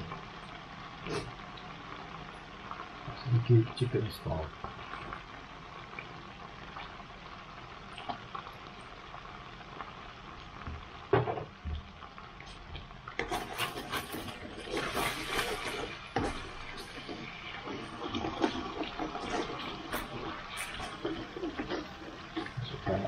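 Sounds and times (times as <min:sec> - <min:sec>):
sauce sizzling in a wok: 0:00.0 - 0:23.0
spatula scraping wok: 0:13.2 - 0:22.6.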